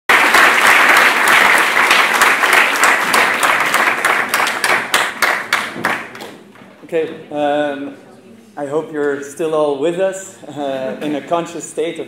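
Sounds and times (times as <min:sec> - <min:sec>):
audience applauding: 0:00.1 - 0:06.4.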